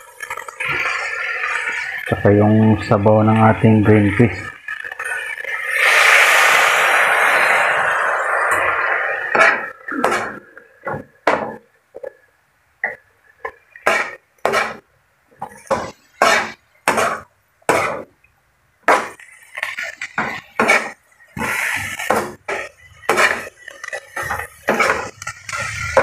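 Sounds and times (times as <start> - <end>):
spatula scraping vegetables in pan: 13.8 - 14.8, 15.4 - 18.0, 18.9 - 26.0.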